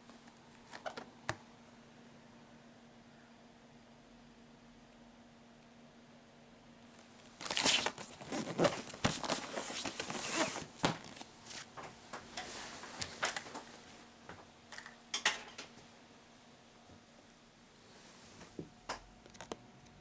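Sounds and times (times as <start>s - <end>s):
cardboard rustling and scraping: 7.4s - 11.8s.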